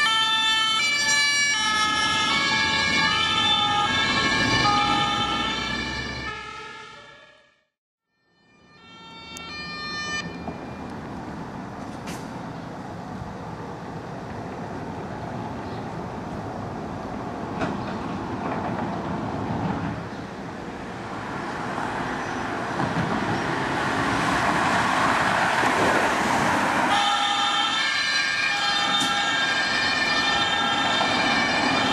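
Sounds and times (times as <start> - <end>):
emergency vehicle siren: 0.0 - 11.4, 23.0 - 31.9
street traffic: 0.0 - 31.9.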